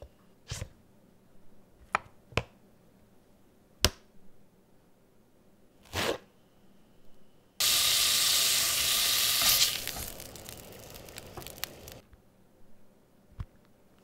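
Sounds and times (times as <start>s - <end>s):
food sizzling in a frying pan: 7.6s - 12.0s.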